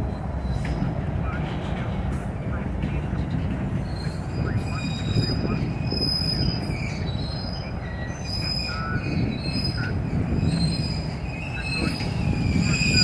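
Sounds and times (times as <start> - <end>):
steel wheels rumbling on rail: 0.0 - 13.0
high wheel squeals: 3.8 - 13.0.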